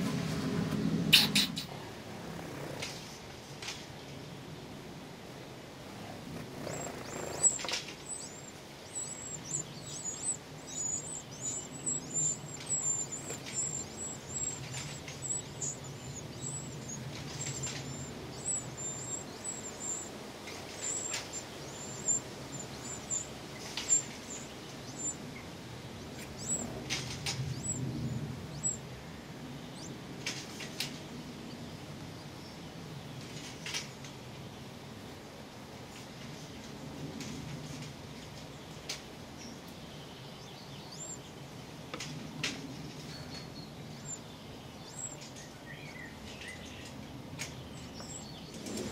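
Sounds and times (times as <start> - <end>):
nestlings cheeping: 1.1 - 1.8, 6.1 - 28.9.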